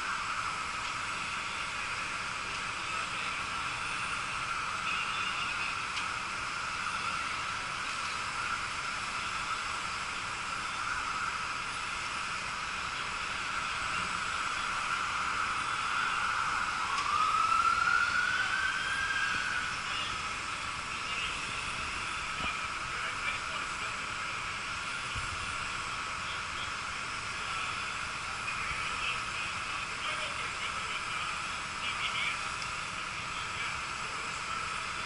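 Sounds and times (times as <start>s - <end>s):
fire engine humming: 0.0s - 35.0s
siren rising in pitch: 10.6s - 20.7s.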